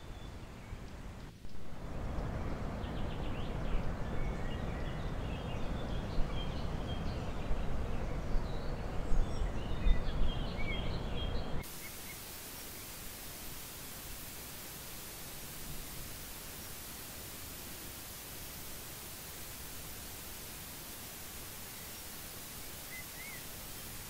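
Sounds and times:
small birds chirping: 0.0s - 24.0s
camera hiss: 11.6s - 24.0s.

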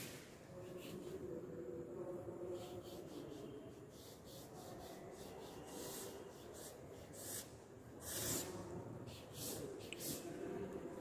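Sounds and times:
marker pen scratching cardboard: 0.6s - 1.2s, 2.5s - 8.5s.

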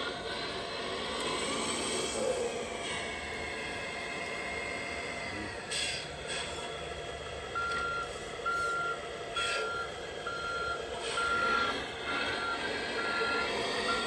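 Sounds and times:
toy truck engine running sound: 0.0s - 14.0s
high reversing beeps: 7.5s - 14.0s.

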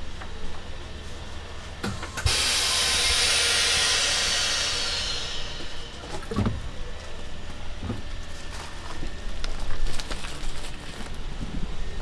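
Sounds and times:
vacuum machine air hiss: 1.9s - 6.1s.

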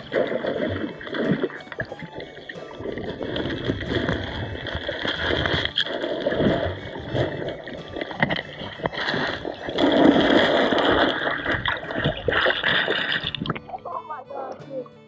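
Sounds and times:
muffled underwater water gurgling: 0.0s - 14.6s.

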